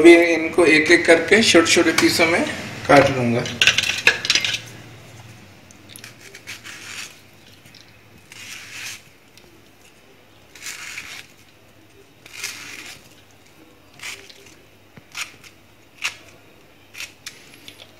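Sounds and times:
knife cutting mango: 6.0 - 11.5, 12.2 - 13.2.

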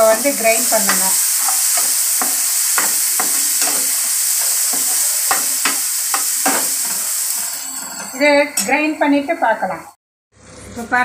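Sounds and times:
spatula scraping frying pan: 0.0 - 8.7
food sizzling in pan: 0.0 - 9.0.

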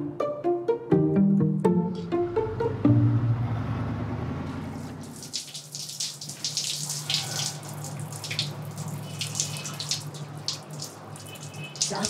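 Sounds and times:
shower water spraying: 4.6 - 12.0.

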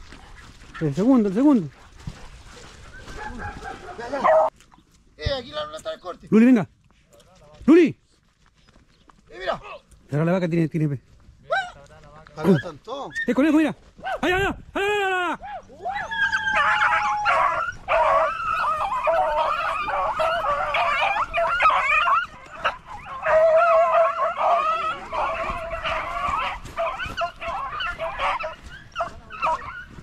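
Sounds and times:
dogs baying and yelping: 0.0 - 4.5, 12.4 - 14.3, 15.3 - 30.0.

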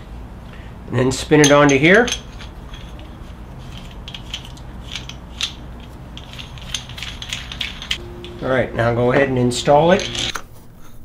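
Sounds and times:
low steady hum: 0.0 - 11.0
steel parts clicking and scraping: 1.4 - 8.4, 9.8 - 10.4.

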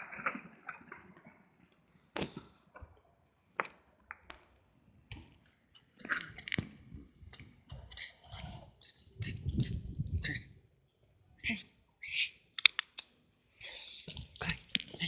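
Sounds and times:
clicks and taps on paving: 12.6 - 13.1, 14.0 - 15.0.

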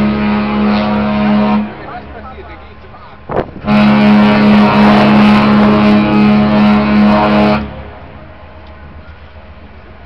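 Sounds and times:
ship horn long blast: 0.0 - 2.2, 3.2 - 8.6.

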